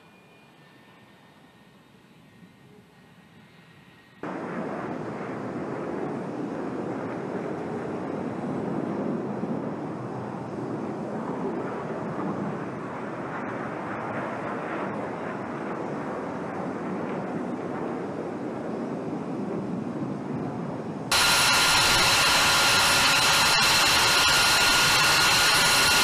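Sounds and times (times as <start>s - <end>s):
jet engines running: 4.2s - 20.2s, 21.0s - 26.0s.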